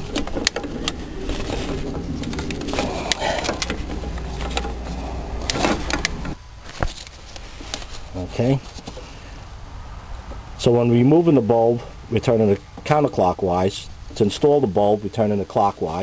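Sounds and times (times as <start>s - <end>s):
plastic clicks and scrapes: 0.0s - 8.0s
low steady rumble: 0.0s - 16.0s.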